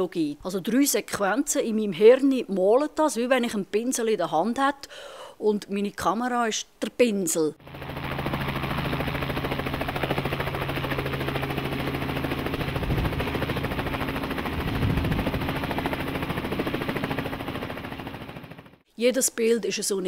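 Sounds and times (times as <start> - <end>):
helicopter engine drone: 7.6 - 18.8
helicopter rotor chopping: 7.6 - 18.8.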